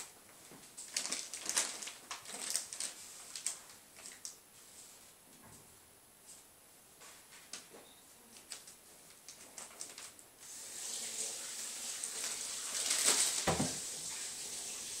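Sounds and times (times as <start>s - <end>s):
plastic wrapping crinkling: 0.0s - 4.4s, 7.3s - 14.3s.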